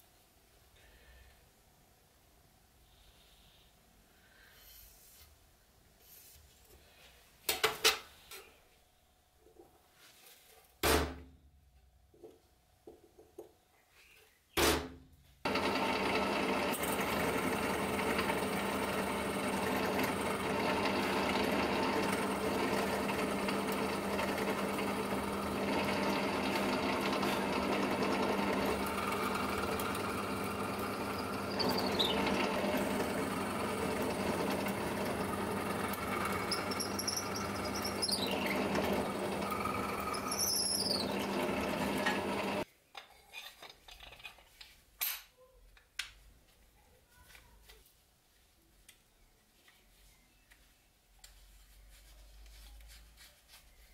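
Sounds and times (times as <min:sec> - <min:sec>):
electric drill boring wood: 0:15.5 - 0:42.6
drill bit squealing: 0:15.7 - 0:42.6.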